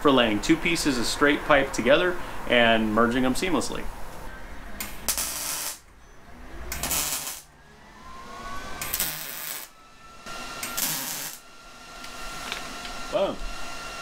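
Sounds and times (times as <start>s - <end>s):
welding arc bursts: 4.8s - 5.8s, 6.7s - 7.5s, 8.8s - 11.5s.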